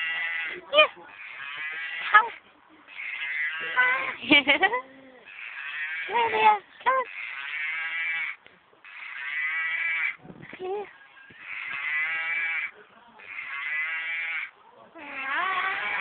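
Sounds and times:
toy cow mooing: 15.0 - 16.0.

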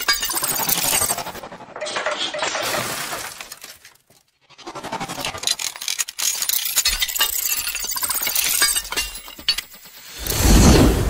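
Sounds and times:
glass shards tinkling: 0.0 - 1.3, 5.8 - 10.4
glass shattering: 5.8 - 10.4.

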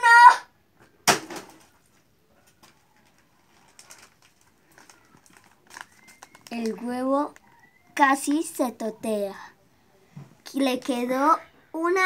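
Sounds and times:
plastic bag crinkling: 1.6 - 8.0.

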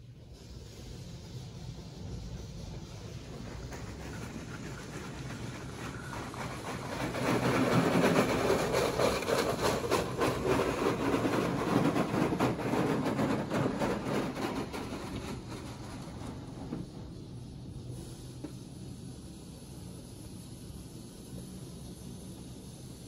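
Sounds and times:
car wash machine humming: 1.5 - 20.0
car wash machine clattering: 3.3 - 17.7.

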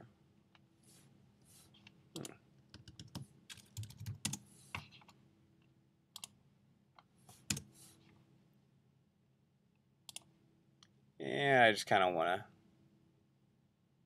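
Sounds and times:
keyboard keys clicking: 2.2 - 5.1.

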